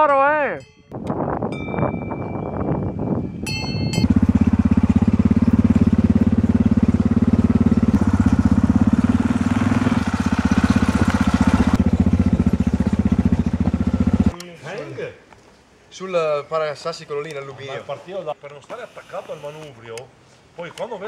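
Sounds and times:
motorcycle engine running steadily: 3.2 - 14.3.

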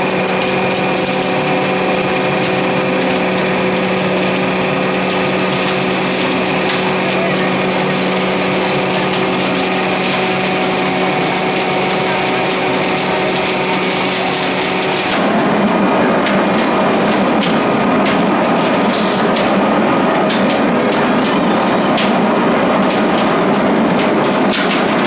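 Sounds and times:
machine hum: 0.0 - 25.0
rattling churn with knocks: 16.2 - 25.0.

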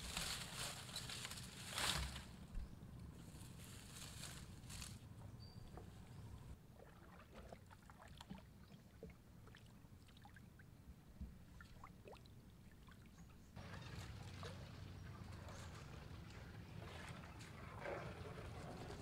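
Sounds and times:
leaves and branches rustling: 0.0 - 6.6
paddle dipping in water: 6.7 - 10.4.

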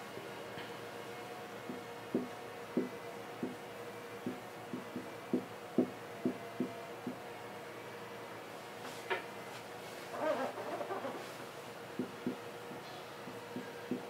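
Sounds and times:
faint steady hum: 0.0 - 14.0
marker pen tapping on whiteboard: 1.7 - 3.6, 4.2 - 7.2, 12.0 - 14.0.

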